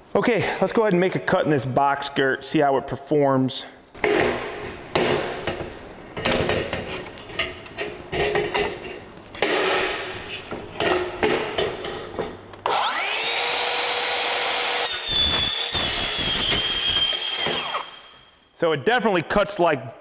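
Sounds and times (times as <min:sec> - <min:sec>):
handling knocks and scrapes: 0:04.0 - 0:12.4
circular saw whine: 0:12.7 - 0:18.3
saw cutting metal tube: 0:12.7 - 0:18.3.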